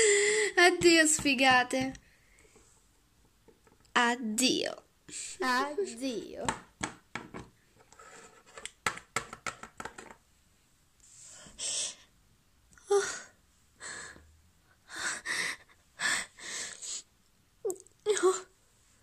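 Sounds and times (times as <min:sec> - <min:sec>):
person gasping and sobbing: 0:00.0 - 0:00.6, 0:12.8 - 0:17.1
plastic toys tapping on wooden table: 0:00.8 - 0:02.0, 0:06.4 - 0:07.6, 0:08.6 - 0:10.2.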